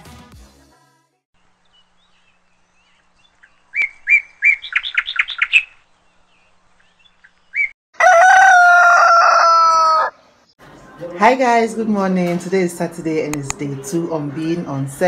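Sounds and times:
bird chirping: 0:01.5 - 0:07.8.

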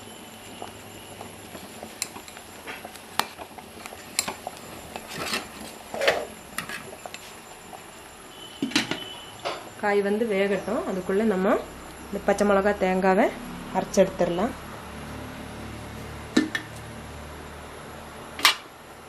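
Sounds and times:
ladle scraping pot: 0:01.5 - 0:07.3.

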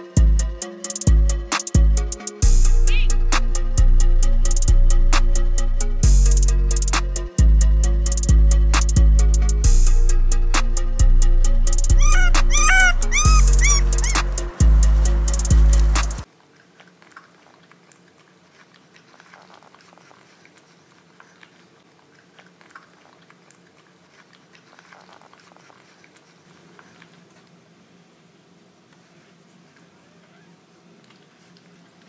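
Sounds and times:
puppies chewing dry kibble: 0:12.0 - 0:27.6.

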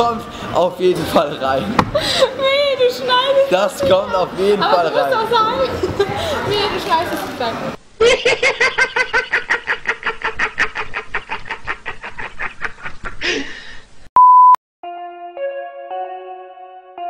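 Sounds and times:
man laughing hysterically: 0:08.0 - 0:13.7
short high beep: 0:14.2 - 0:14.6
music with held chords: 0:14.8 - 0:17.0.

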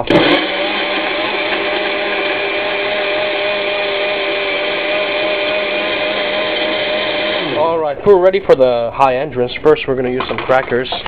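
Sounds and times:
blender running: 0:00.0 - 0:08.0.

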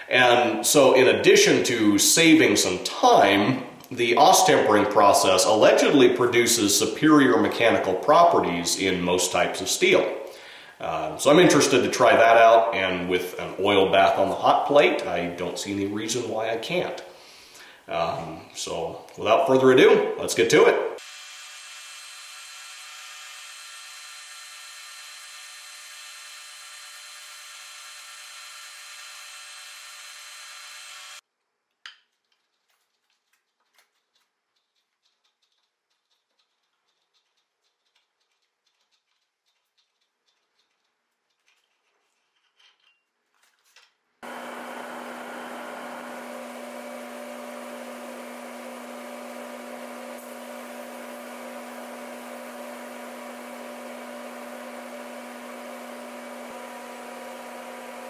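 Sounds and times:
small clicks: 0:31.7 - 0:44.0
metal lathe whine: 0:44.2 - 0:58.0.

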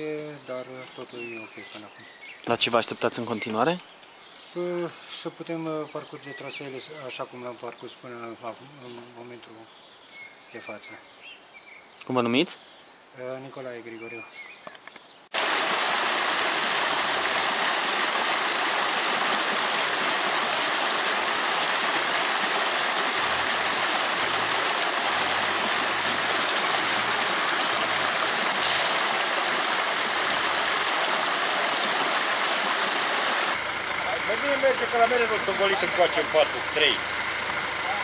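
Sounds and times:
stream rushing over rocks: 0:15.3 - 0:33.6.

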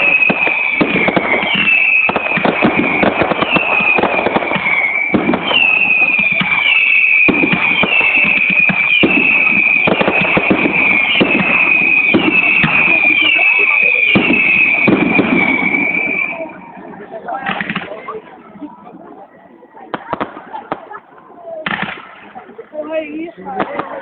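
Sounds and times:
fireworks bangs and crackles: 0:00.0 - 0:24.0
high whistling tone with chirps: 0:04.7 - 0:09.9, 0:10.8 - 0:16.7.

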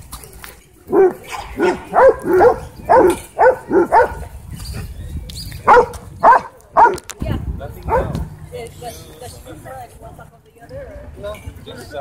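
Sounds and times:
dog barking loudly: 0:00.9 - 0:04.3, 0:05.6 - 0:07.1, 0:07.9 - 0:08.2.

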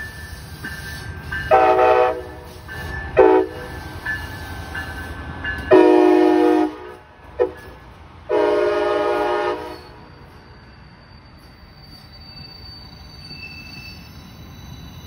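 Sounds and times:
passing train rumble: 0:00.0 - 0:15.0
train horn blasts: 0:01.5 - 0:02.5, 0:03.2 - 0:03.7, 0:05.7 - 0:10.0.

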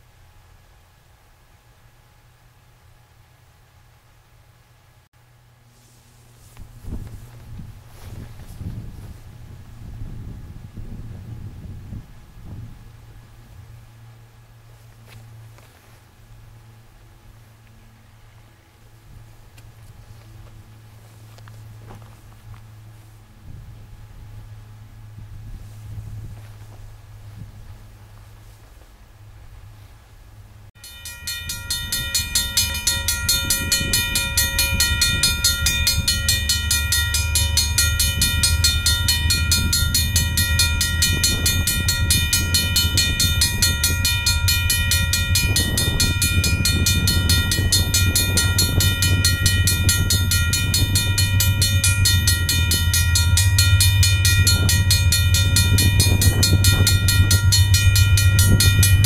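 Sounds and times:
freight train rumble: 0:04.7 - 0:59.0
high-pitched whine: 0:30.8 - 0:59.0.

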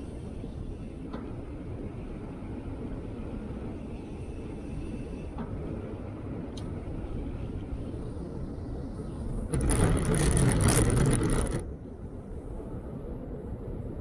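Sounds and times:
velomobile rolling rumble: 0:05.3 - 0:14.0.

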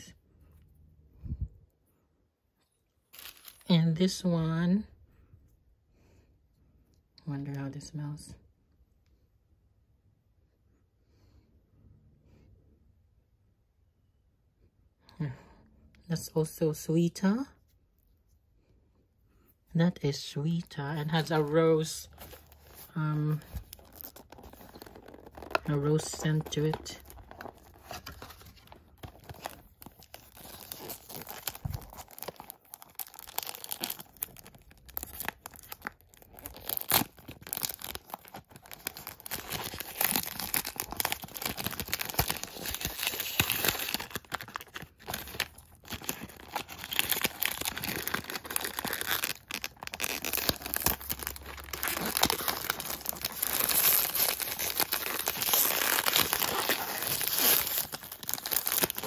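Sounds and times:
cellophane wrap crinkling: 0:03.1 - 0:03.7, 0:20.2 - 0:59.0.

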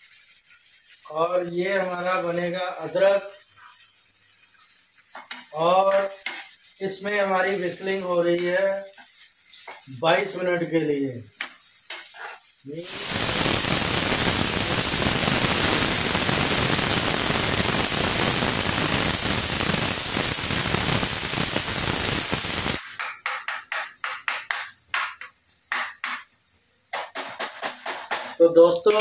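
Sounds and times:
pressure cooker whistle hissing: 0:12.7 - 0:22.9.

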